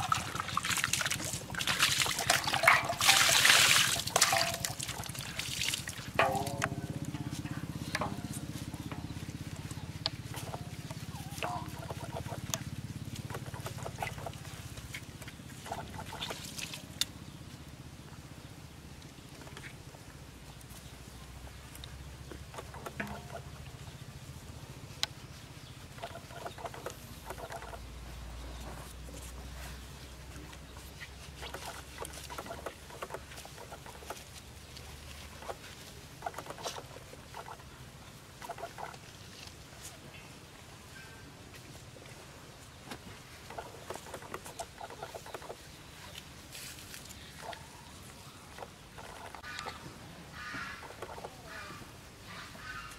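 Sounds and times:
water dripping: 0.0s - 7.2s
low hum: 0.0s - 32.8s.

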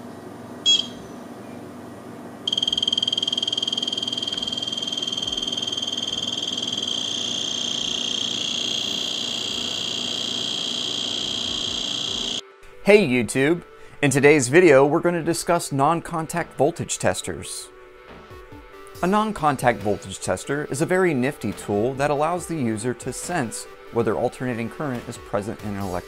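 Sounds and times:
fast-pulsing high beeping alarm: 0.6s - 1.0s, 2.5s - 12.4s
short button beep: 0.7s - 1.0s.

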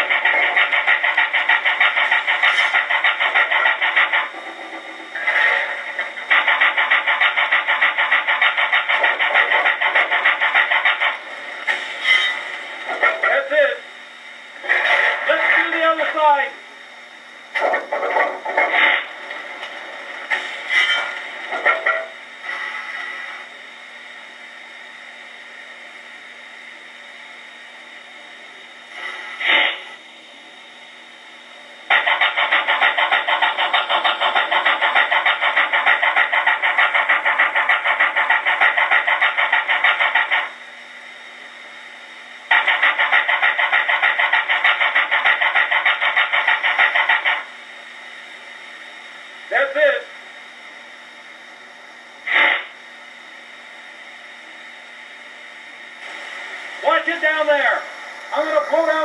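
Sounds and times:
steam locomotive hiss: 0.0s - 14.0s, 17.6s - 23.6s, 28.9s - 30.0s, 31.9s - 40.8s, 42.5s - 48.8s, 52.2s - 52.9s
fast rhythmic steam chuffing: 0.0s - 59.0s.

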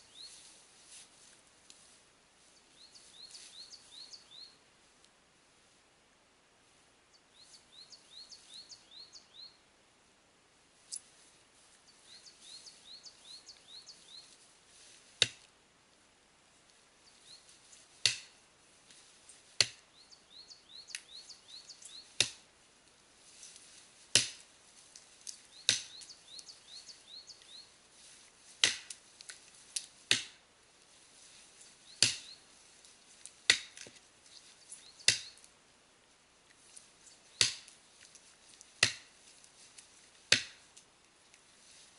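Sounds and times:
axe chopping tree trunk: 15.2s - 15.5s, 18.0s - 18.4s, 19.6s - 19.8s, 22.2s - 22.4s, 24.1s - 24.4s, 25.7s - 26.0s, 28.6s - 29.0s, 30.1s - 30.4s, 32.0s - 32.4s, 33.5s - 33.9s, 35.0s - 35.4s, 37.4s - 37.8s, 38.8s - 39.1s, 40.3s - 40.7s.

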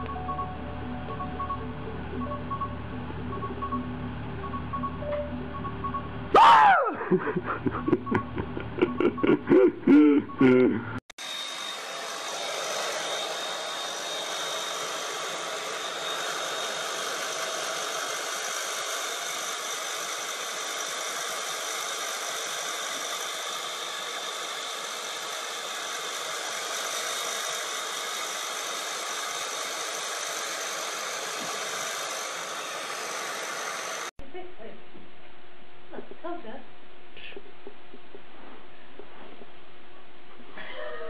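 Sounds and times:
hair dryer blowing air: 11.2s - 34.1s.

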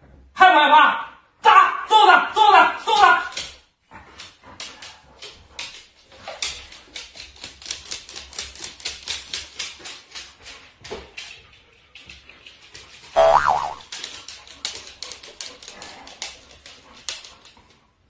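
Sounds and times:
dog claws clicking on wooden floor: 3.0s - 13.2s, 13.8s - 17.8s.

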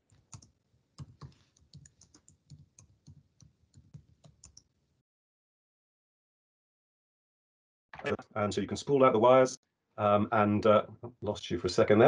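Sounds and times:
computer keys clicking: 0.2s - 4.7s.

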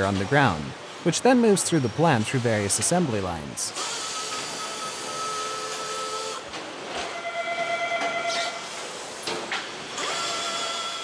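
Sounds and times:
machinery whining tones: 7.1s - 8.8s.

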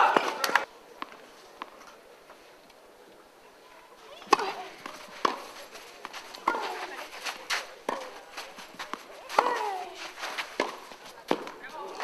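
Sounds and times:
tennis ball struck by rackets: 4.2s - 7.0s, 7.8s - 11.7s.

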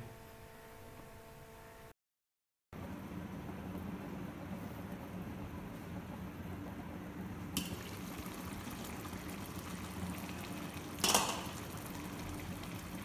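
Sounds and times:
bubbles popping in simmering pot: 7.4s - 13.0s.

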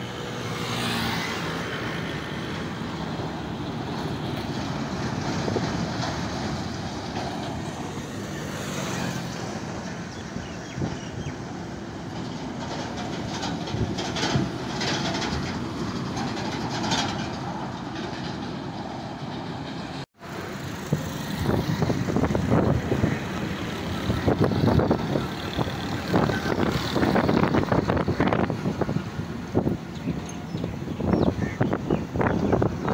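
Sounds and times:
trucks driving past: 0.0s - 32.9s
vehicle clattering: 1.7s - 32.9s.

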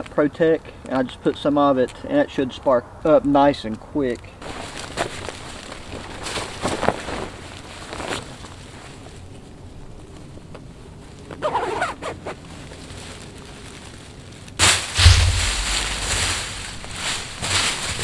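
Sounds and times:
jacket rustling: 14.6s - 18.0s.

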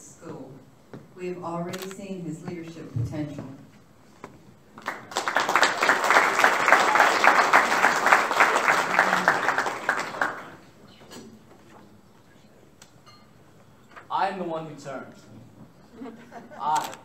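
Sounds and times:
audience applauding: 4.8s - 10.6s.

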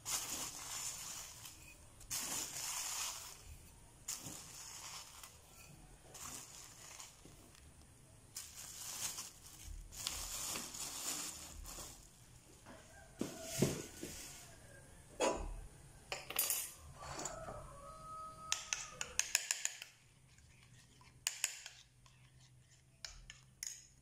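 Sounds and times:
plastic bag crinkling: 0.0s - 12.4s.

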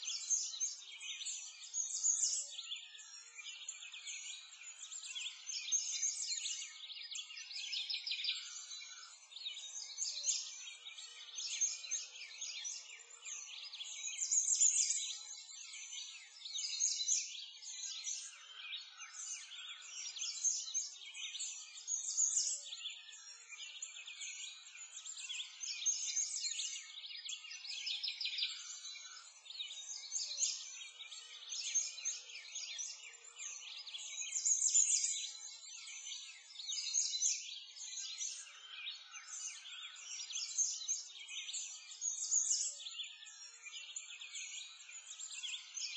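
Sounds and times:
small birds chirping: 0.0s - 45.9s.

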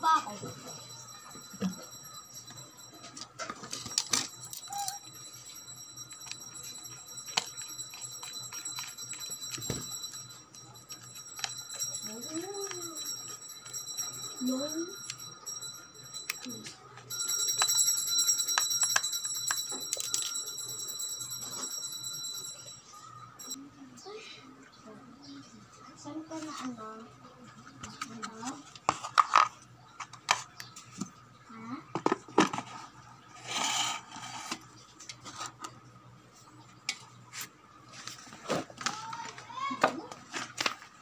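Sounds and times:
high-pitched ringing tone: 0.0s - 24.0s.

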